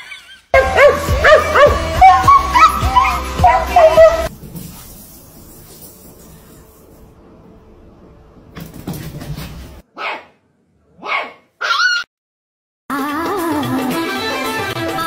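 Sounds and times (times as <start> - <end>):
puppy barking and yipping: 0.0 - 4.3, 10.0 - 10.3, 11.0 - 12.1.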